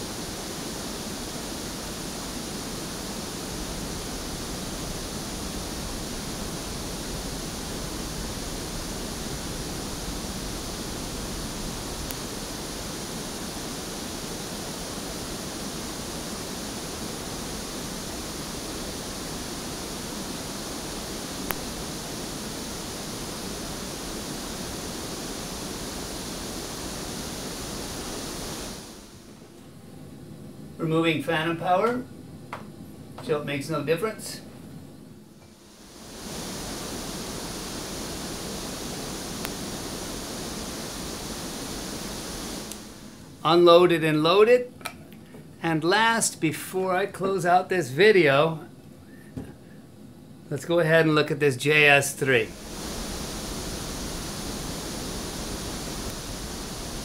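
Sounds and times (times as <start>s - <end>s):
pink noise hiss: 0.0s - 57.0s.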